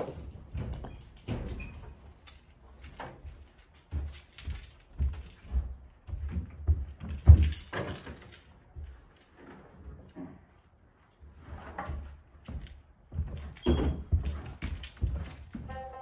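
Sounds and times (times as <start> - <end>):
footsteps on carpeted stairs: 0.0 - 10.1, 10.8 - 16.0
thump and rattle: 6.2 - 8.5.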